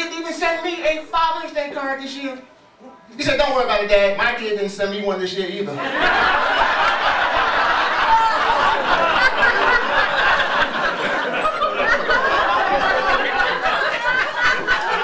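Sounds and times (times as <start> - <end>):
audience laughing loudly: 5.8 - 15.0.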